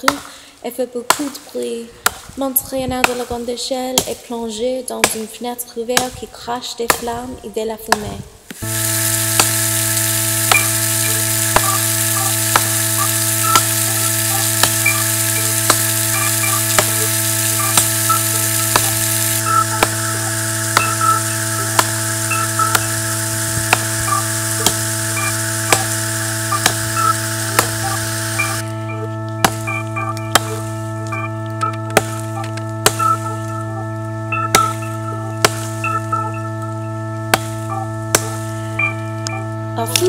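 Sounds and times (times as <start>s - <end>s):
steady low hum: 8.2s - 40.0s
sharp ticks: 8.5s - 40.0s
water spraying from leaking pipe: 8.6s - 28.6s.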